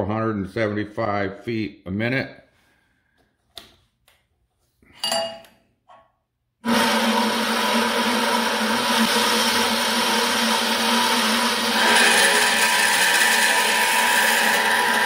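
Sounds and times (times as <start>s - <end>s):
metallic clink: 4.9s - 5.5s
band saw running: 6.6s - 15.0s.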